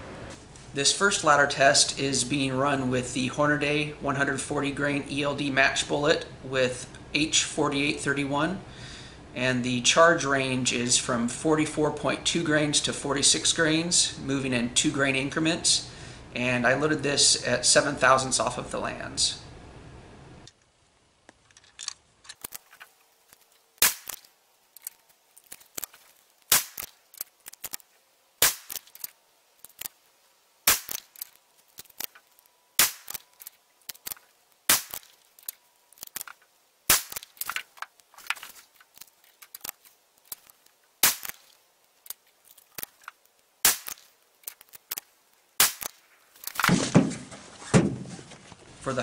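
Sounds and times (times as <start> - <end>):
rifle shots: 26.5 - 26.9, 28.4 - 28.8, 30.7 - 31.0, 32.8 - 33.2, 34.7 - 35.1, 36.9 - 37.2, 41.0 - 41.4, 43.6 - 44.0, 45.6 - 46.0.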